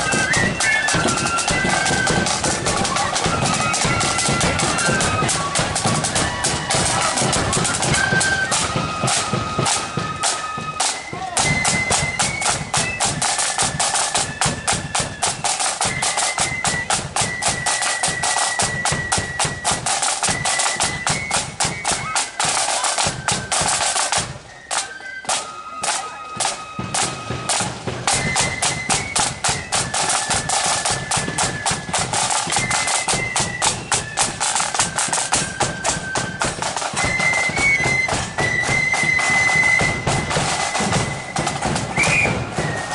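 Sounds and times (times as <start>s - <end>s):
flute melody: 0.0s - 42.9s
side drums rolling: 0.0s - 42.9s.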